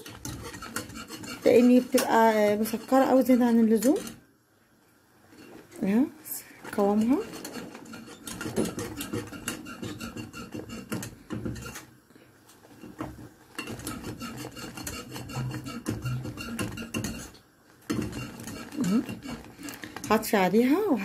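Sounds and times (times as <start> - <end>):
wire whisk beating in saucepan: 0.0 - 4.2, 6.6 - 11.8, 12.7 - 20.8.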